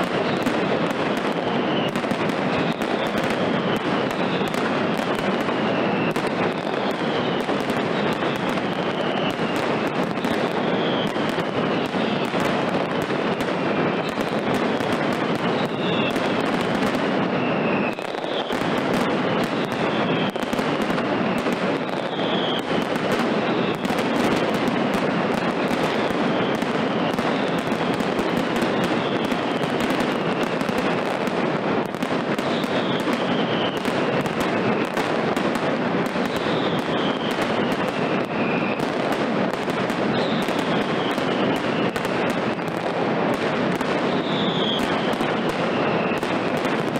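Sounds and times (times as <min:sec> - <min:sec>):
firecracker bangs crackling: 0:00.0 - 0:46.9.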